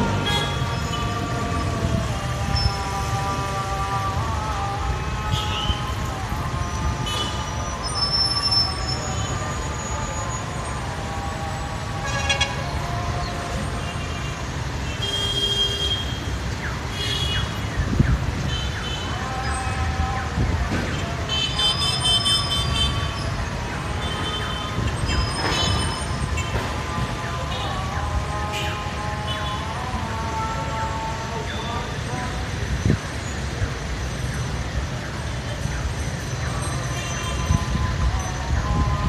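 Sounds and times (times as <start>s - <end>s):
traffic rumble: 0.0s - 39.0s.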